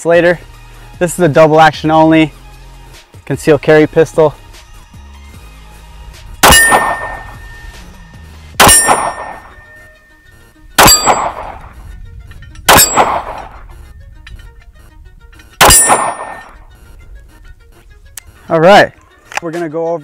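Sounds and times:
pistol shots: 6.4s - 7.8s, 8.6s - 9.9s, 10.8s - 11.8s, 12.7s - 13.7s, 15.6s - 16.6s
steel target ringing clang: 6.4s - 7.8s, 8.6s - 10.0s, 10.8s - 11.7s, 12.7s - 13.6s, 15.6s - 16.6s.

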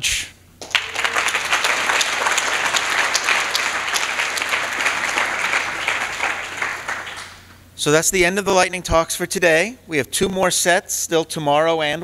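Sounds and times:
audience applauding: 0.6s - 7.5s.

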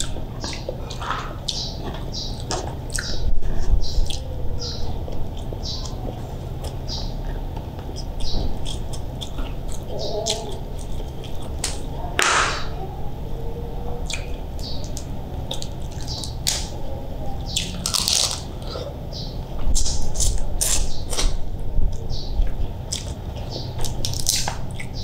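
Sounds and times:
chewing: 0.0s - 25.0s
crab shell cracking: 23.9s - 25.0s.

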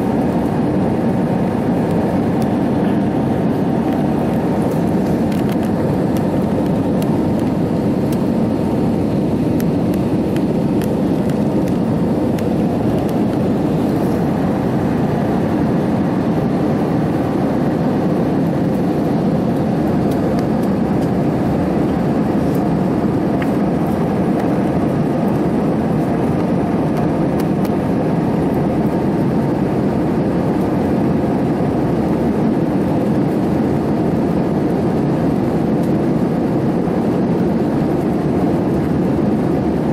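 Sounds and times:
jet airliner cabin noise: 0.0s - 39.9s.

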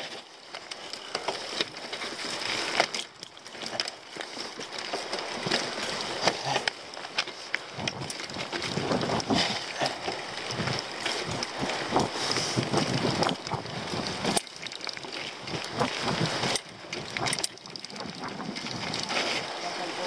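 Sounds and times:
bike knocking and rattling: 0.0s - 20.0s
bike tyres crunching over stones: 0.0s - 20.0s
wind buffeting microphone: 7.7s - 20.0s.

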